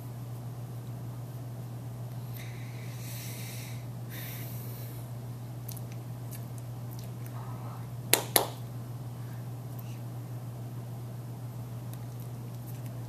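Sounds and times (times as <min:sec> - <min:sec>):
low room hum: 0:00.0 - 0:13.0
hands clapping: 0:08.1 - 0:08.6.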